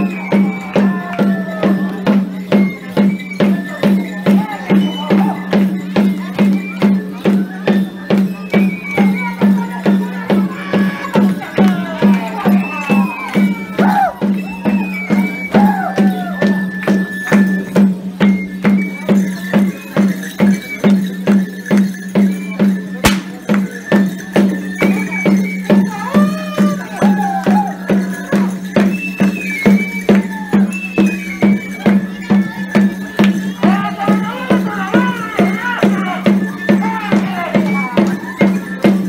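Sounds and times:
shrill wind instrument melody: 0.0s - 5.8s, 23.0s - 38.4s
steady drum beat: 21.1s - 28.9s.

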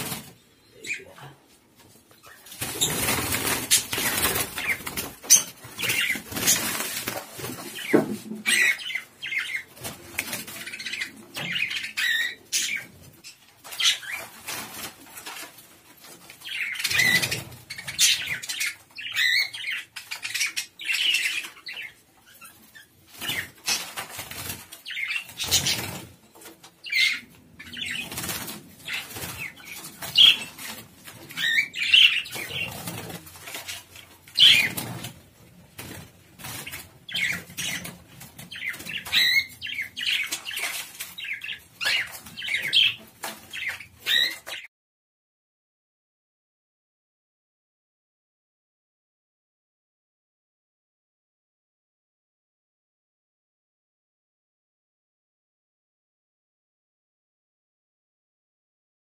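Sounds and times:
wings flapping: 2.4s - 8.9s, 23.1s - 26.5s, 27.6s - 44.7s
budgerigars chirping: 7.8s - 9.7s, 10.6s - 14.2s, 16.4s - 23.9s, 24.8s - 25.8s, 26.8s - 28.1s, 28.8s - 30.6s, 31.3s - 32.8s, 34.4s - 34.8s, 36.6s - 44.7s.

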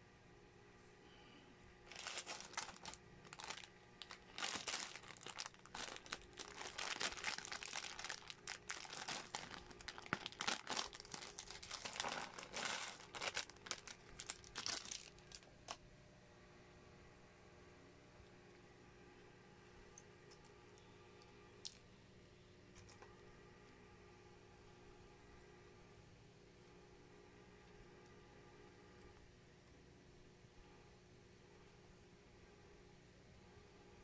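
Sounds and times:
plastic bag crinkling: 1.9s - 15.8s.

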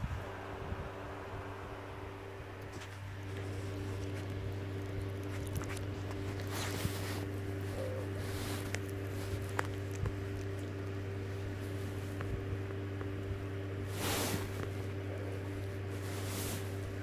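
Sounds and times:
low electrical hum: 0.0s - 17.0s
animals licking fur: 2.6s - 17.0s.

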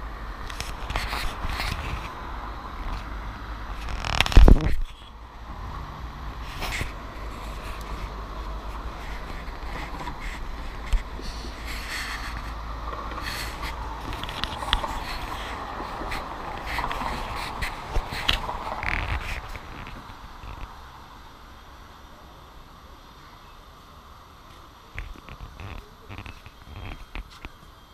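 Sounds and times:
street traffic rumble: 0.0s - 27.9s
scattered rustles: 0.4s - 2.2s, 3.7s - 5.2s, 6.4s - 20.8s, 24.5s - 27.6s.

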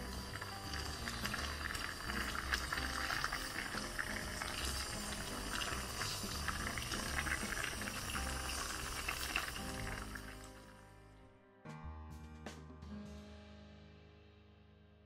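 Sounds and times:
stew bubbling in a pot: 0.0s - 10.6s
background music: 0.0s - 15.0s.

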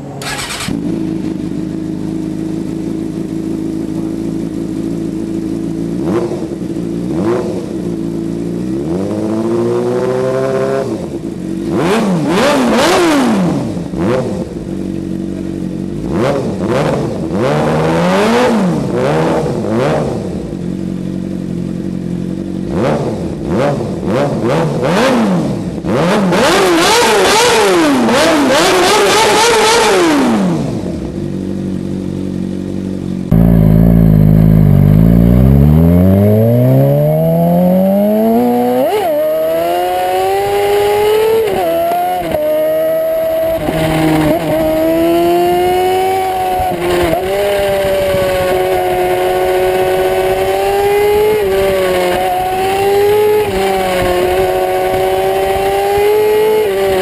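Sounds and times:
motorcycle engine idling: 0.0s - 8.8s, 11.0s - 11.7s, 13.7s - 16.2s, 20.3s - 24.1s, 30.8s - 35.8s
motorcycle accelerating hard: 0.0s - 57.0s
motorcycle engine revving: 0.0s - 57.0s.

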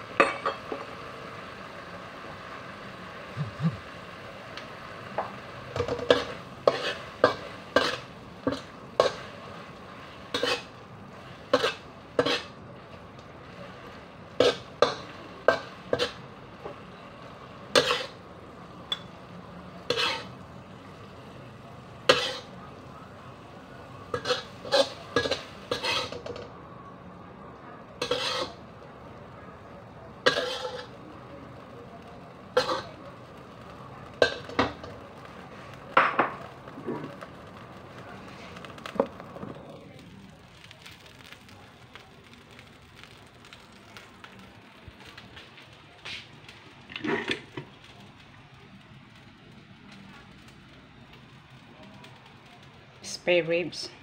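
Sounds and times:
metal spatula scraping a wok: 5.8s - 10.8s, 11.4s - 12.6s, 17.7s - 18.2s, 19.8s - 20.4s, 22.1s - 22.5s, 24.1s - 26.4s, 28.0s - 28.6s, 30.2s - 31.0s, 32.6s - 32.9s.

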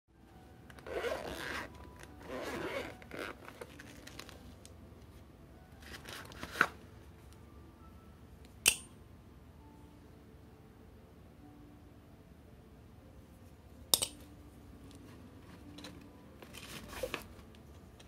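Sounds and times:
zipper rasping open: 0.8s - 4.2s
sharp metal clicks: 8.6s - 8.9s.

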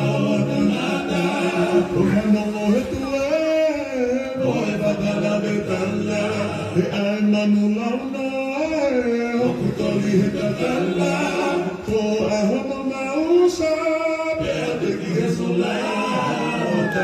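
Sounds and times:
group of voices singing: 0.0s - 17.0s.

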